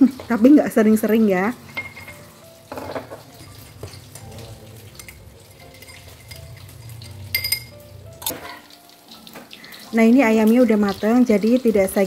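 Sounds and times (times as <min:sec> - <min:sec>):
spoon stirring tea in a glass: 0:01.8 - 0:08.4
metal clinking on glass: 0:01.8 - 0:08.7.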